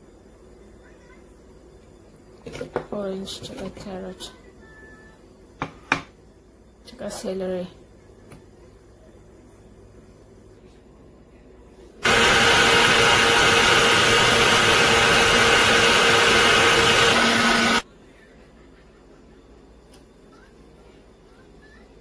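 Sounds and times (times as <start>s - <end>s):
blender motor running: 12.0s - 17.8s.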